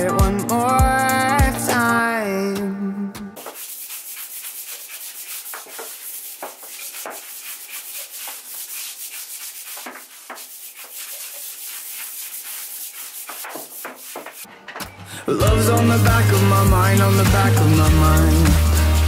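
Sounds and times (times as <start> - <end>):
brush scrubbing tiles: 3.4 - 14.5, 15.9 - 19.0.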